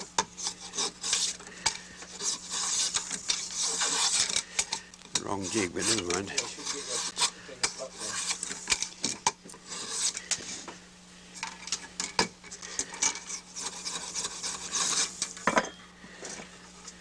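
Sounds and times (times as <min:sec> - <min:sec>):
chisel scraping bamboo: 0:00.0 - 0:10.5, 0:12.8 - 0:15.4.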